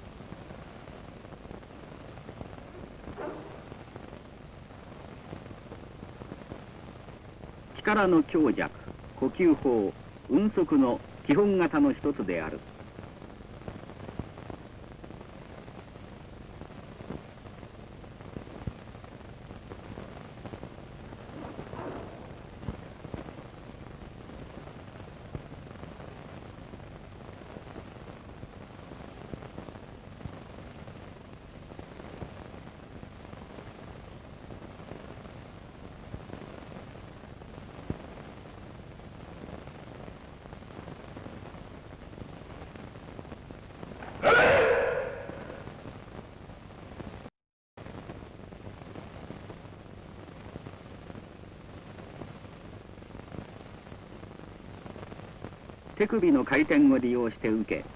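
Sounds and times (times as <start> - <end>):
faint low hum: 0.0 - 46.3
faint crackles and pops: 0.0 - 57.9
film soundtrack hiss: 0.0 - 57.9.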